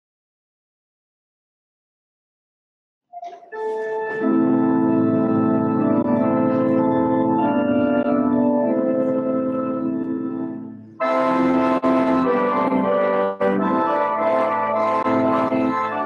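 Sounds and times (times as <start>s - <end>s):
church organ chords: 3.2s - 16.0s.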